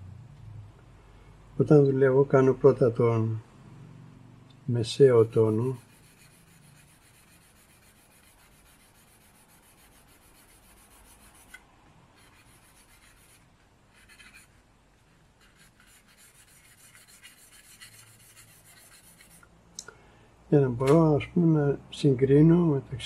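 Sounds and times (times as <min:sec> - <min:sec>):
charcoal scratching on paper: 0:05.1 - 0:11.6, 0:12.2 - 0:19.4.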